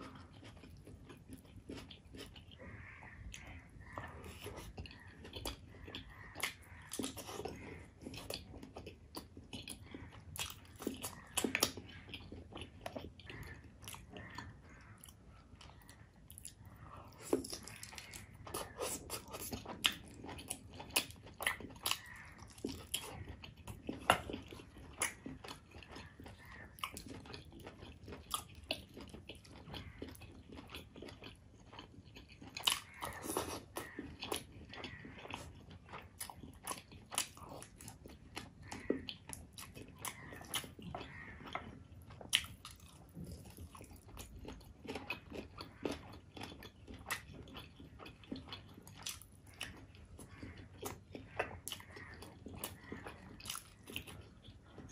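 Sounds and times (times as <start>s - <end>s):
biting and chewing food: 0.0s - 54.9s.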